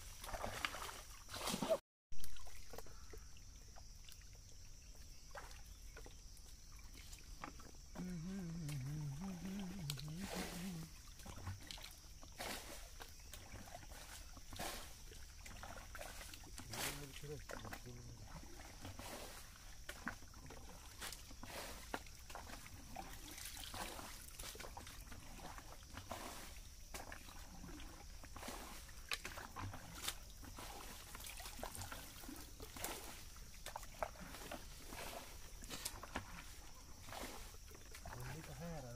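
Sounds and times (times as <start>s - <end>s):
hands splashing in stream water: 0.0s - 2.9s
muddy water splashing: 0.0s - 38.9s
person's wavering voice: 8.0s - 11.0s.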